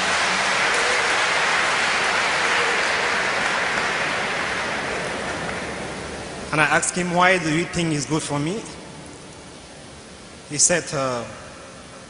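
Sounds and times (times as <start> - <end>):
audience applauding: 0.0 - 6.6.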